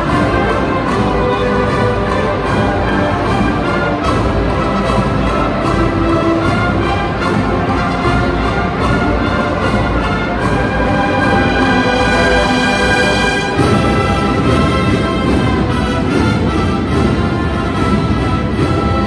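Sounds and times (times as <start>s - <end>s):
brass and drum band march: 0.0s - 19.0s.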